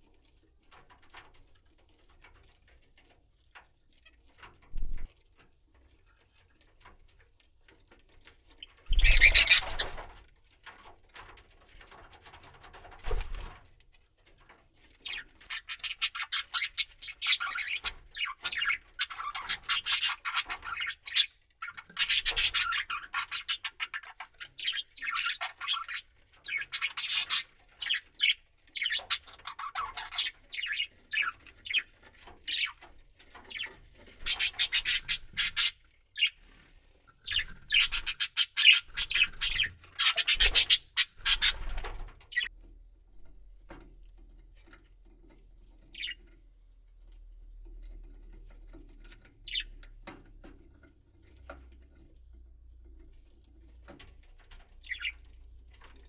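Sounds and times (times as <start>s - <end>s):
budgerigar chattering and warbling: 8.9s - 9.8s, 37.3s - 41.6s.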